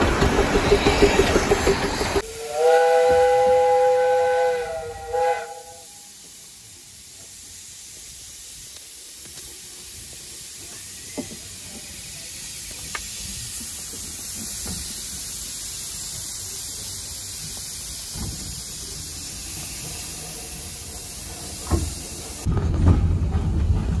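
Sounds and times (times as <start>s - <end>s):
train clunks: 0.0s - 3.7s, 10.6s - 24.0s
steam locomotive hissing: 0.0s - 22.5s.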